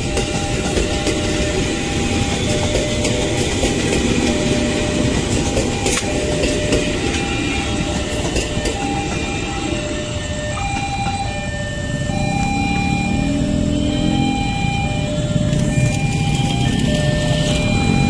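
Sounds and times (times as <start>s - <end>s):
wheels clicking over rail joints: 0.0s - 9.4s
train wheels rumbling on rails: 0.0s - 18.0s.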